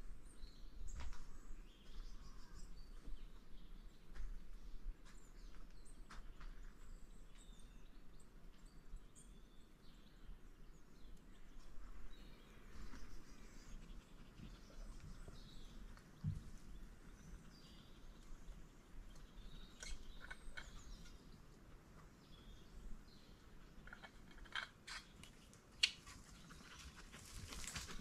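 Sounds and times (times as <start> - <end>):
bird chirps: 5.2 - 21.4.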